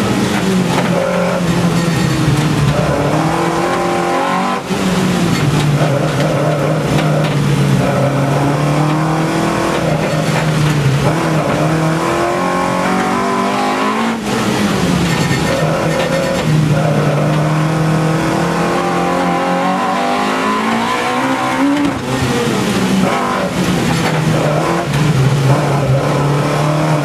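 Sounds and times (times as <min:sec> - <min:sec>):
race car engine revving: 0:00.0 - 0:27.0.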